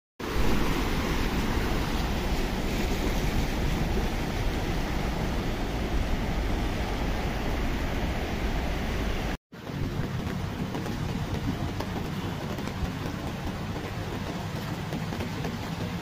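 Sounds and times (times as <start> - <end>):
floodwater rushing: 0.2 - 16.0
wind rumble on microphone: 0.2 - 16.0.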